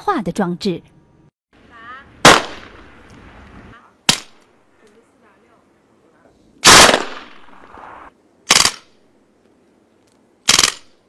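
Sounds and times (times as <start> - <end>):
gunshots: 2.2 - 3.0, 4.1 - 4.4, 6.6 - 8.9, 10.5 - 10.9.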